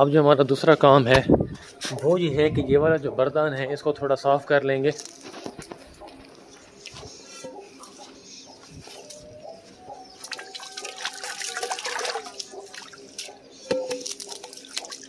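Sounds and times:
hose water splashing into metal pan: 10.3s - 13.0s.

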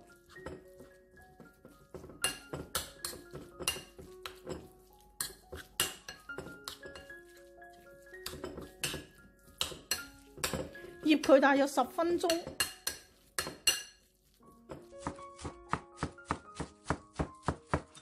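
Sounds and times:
soft background music: 0.0s - 18.0s
metal spoon scraping ceramic bowl: 2.0s - 7.5s, 8.1s - 11.4s, 12.2s - 14.1s.

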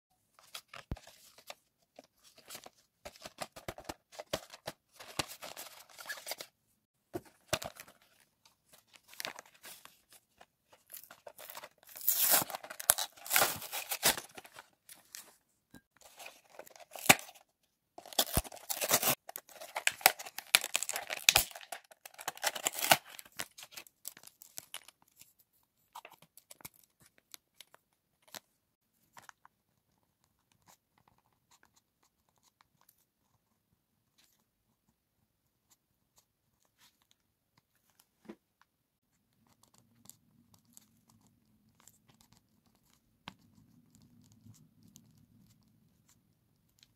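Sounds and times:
packaging being torn open: 10.9s - 14.5s, 18.0s - 23.9s
packaging crinkling: 10.9s - 14.7s, 18.0s - 24.9s.

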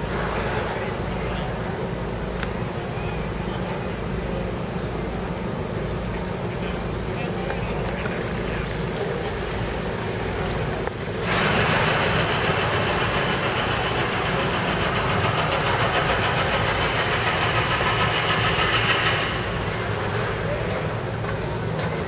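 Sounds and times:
low engine rumble: 0.0s - 22.0s
machinery rattling harshly: 8.3s - 21.8s.

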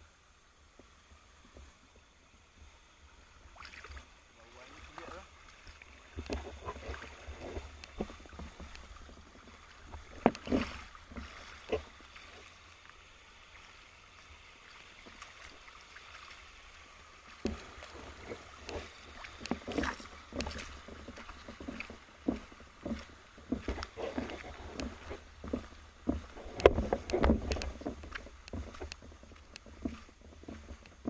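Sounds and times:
underwater clicks and knocks: 6.2s - 11.9s, 17.4s - 31.0s.

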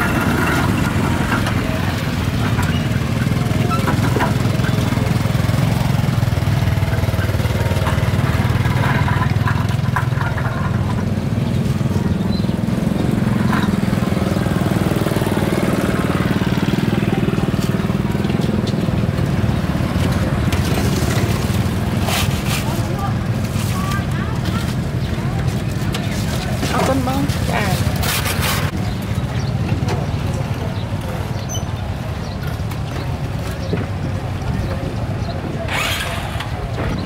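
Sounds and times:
small engine running: 35.6s - 37.0s.

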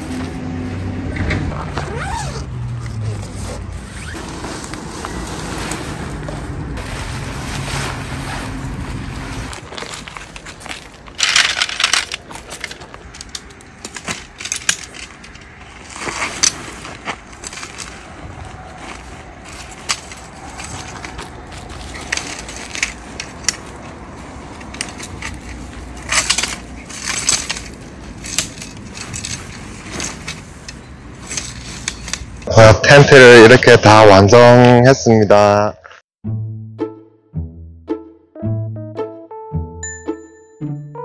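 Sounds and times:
metal tent poles clinking: 6.8s - 32.6s.

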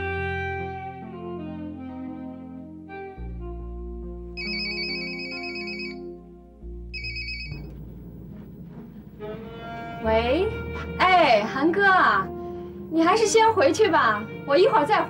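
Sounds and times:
drama music: 0.0s - 15.0s
mobile phone ringing: 4.4s - 6.1s, 6.9s - 7.8s.

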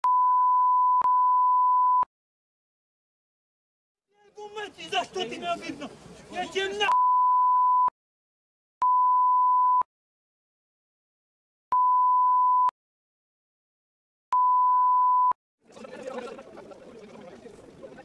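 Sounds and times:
censor bleeps: 0.0s - 2.1s, 6.9s - 7.9s, 8.8s - 9.9s, 11.7s - 12.7s, 14.3s - 15.4s
field background noise: 4.2s - 6.9s.

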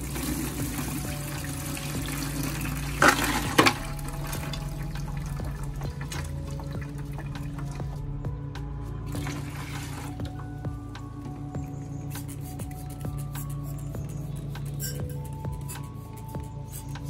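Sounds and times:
liquid splashing and draining: 0.1s - 7.8s.

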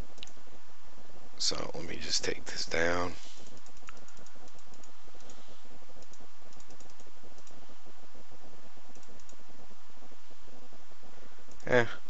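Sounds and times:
keyboard and mouse clicks: 3.5s - 5.4s, 6.0s - 7.6s, 8.9s - 9.4s.

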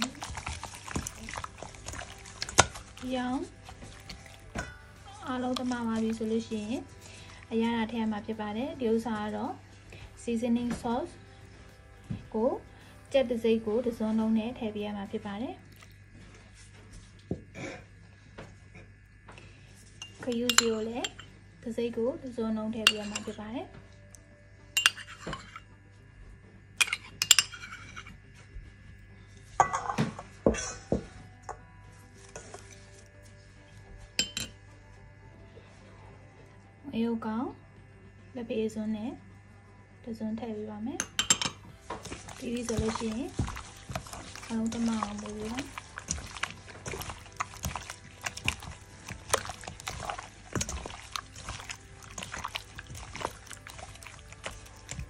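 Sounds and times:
wet meat squelching: 0.0s - 10.1s, 41.7s - 55.0s
metal spoon clinking on steel bowl: 20.0s - 21.3s, 22.8s - 23.4s, 24.8s - 25.6s, 26.8s - 28.1s, 34.2s - 34.6s, 41.0s - 55.0s.

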